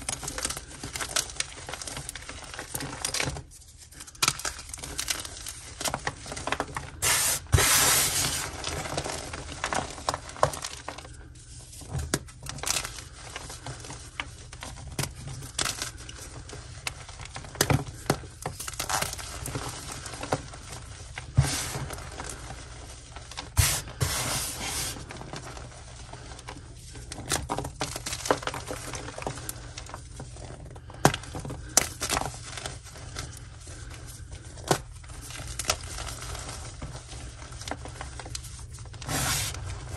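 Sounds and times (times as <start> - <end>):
powdery crumbles: 0.0 - 39.9
chalk crunching between hands: 7.0 - 8.5, 23.6 - 25.0, 39.1 - 39.9.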